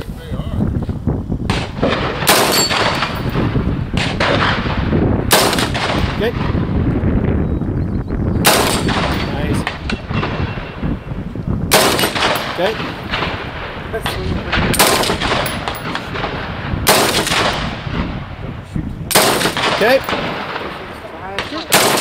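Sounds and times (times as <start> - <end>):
steady low rumble: 0.0 - 22.0
rifle shots echoing: 1.5 - 6.7, 8.4 - 10.8, 11.7 - 18.2, 19.1 - 22.0.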